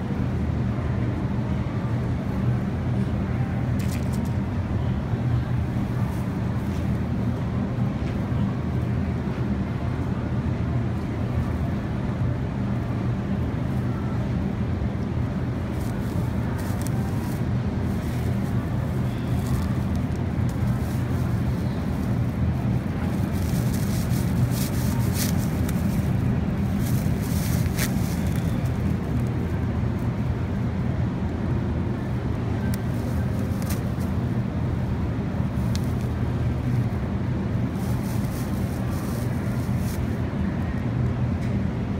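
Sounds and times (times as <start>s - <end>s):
supermarket background hum: 0.0s - 41.9s
plastic bag crackling: 15.6s - 29.5s, 32.6s - 34.2s, 37.6s - 40.2s.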